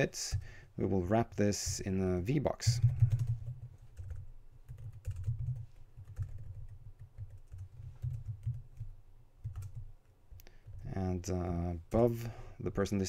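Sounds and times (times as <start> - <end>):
computer keyboard typing: 2.6 - 9.9.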